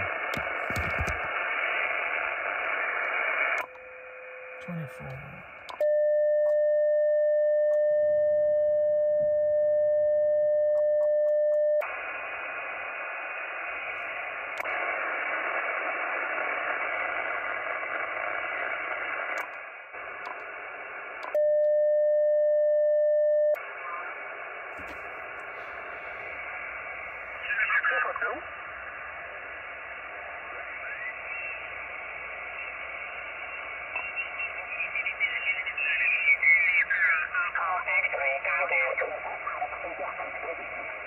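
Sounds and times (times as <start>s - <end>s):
radio receiver hiss: 0.0s - 3.9s, 11.8s - 21.4s, 23.6s - 41.0s
radio beep tone: 30.4s - 37.6s.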